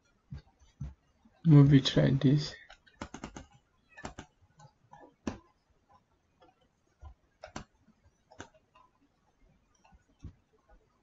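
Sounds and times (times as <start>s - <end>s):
mouse and keyboard clicks: 2.7s - 5.5s, 6.4s - 8.9s.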